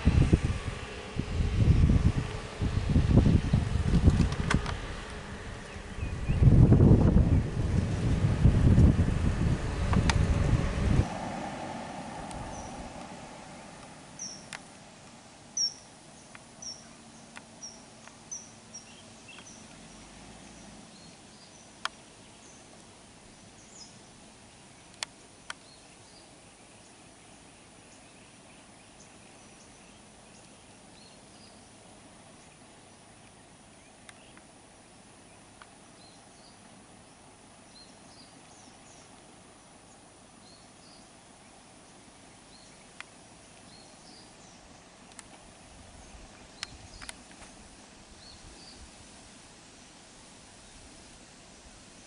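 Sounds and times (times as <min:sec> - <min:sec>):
low rumble: 0:00.0 - 0:15.0
faint background hiss: 0:00.0 - 0:52.0
small birds chirping: 0:01.5 - 0:07.5, 0:12.2 - 0:50.0
sharp clicks: 0:46.6 - 0:47.5.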